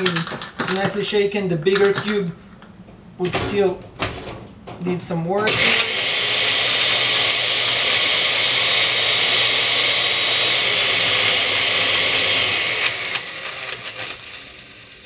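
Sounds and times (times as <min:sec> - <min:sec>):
blender crushing ice: 0:05.5 - 0:15.0.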